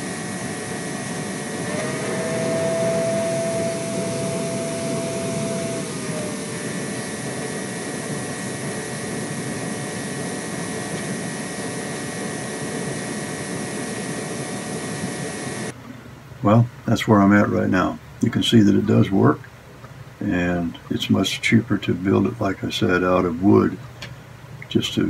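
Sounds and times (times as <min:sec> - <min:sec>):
motor whining tone: 0:00.0 - 0:15.7
shop vacuum rushing: 0:00.0 - 0:15.7.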